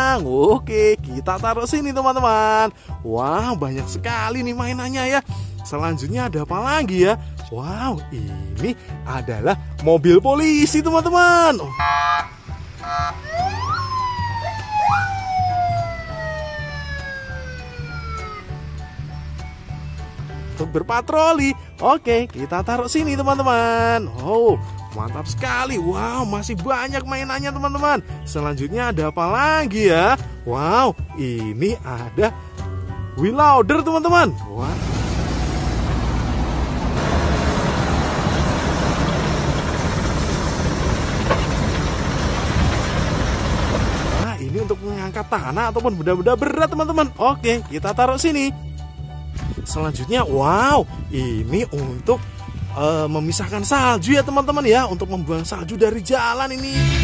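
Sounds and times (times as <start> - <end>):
diesel engine rumbling: 2.7 - 21.8, 34.4 - 46.4
police car siren: 11.7 - 18.7.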